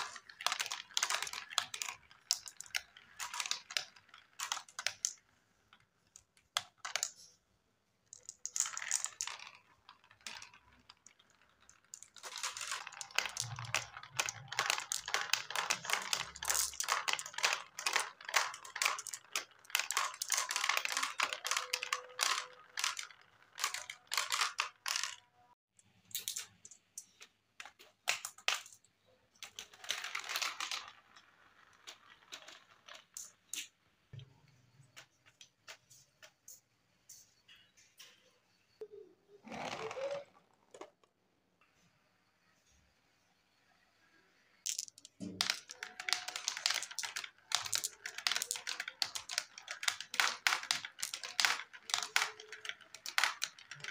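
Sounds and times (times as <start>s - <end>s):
marbles clattering down plastic run: 0.0s - 7.3s, 8.1s - 25.5s, 27.6s - 33.7s, 44.6s - 53.9s.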